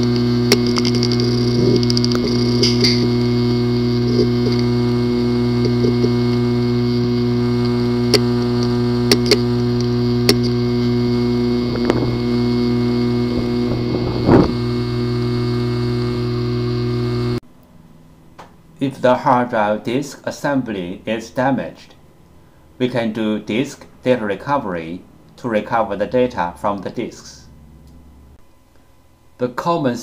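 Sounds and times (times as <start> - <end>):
hard disk drive clatter: 0.0 - 17.4
hard disk drive clicking: 0.0 - 17.4
hard disk drive hum: 0.0 - 18.9.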